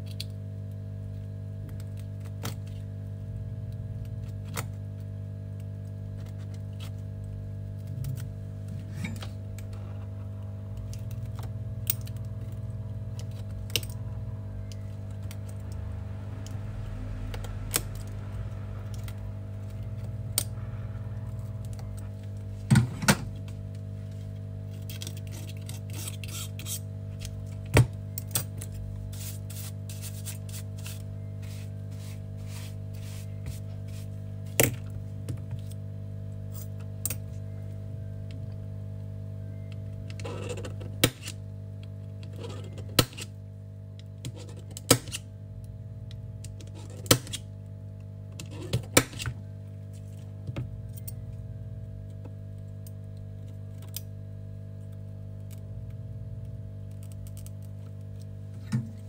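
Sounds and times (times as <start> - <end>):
low electrical hum: 0.0 - 59.0
small clicks and scratches: 3.7 - 14.0, 24.2 - 34.1, 44.0 - 45.2, 46.4 - 47.5, 56.8 - 58.4.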